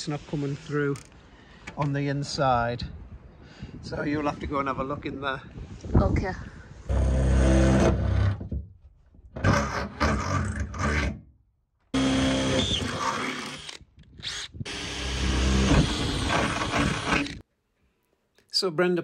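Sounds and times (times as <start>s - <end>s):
cordless drill boring through metal: 12.0s - 17.4s.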